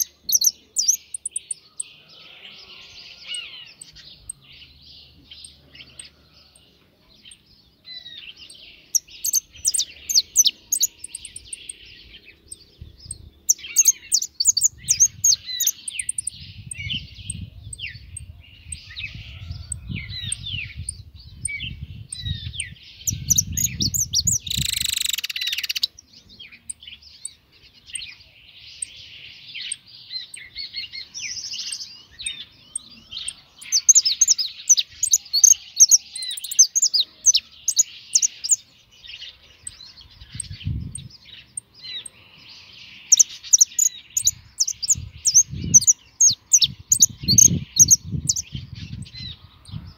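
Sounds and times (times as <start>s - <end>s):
finch twittering song: 0.0s - 49.9s.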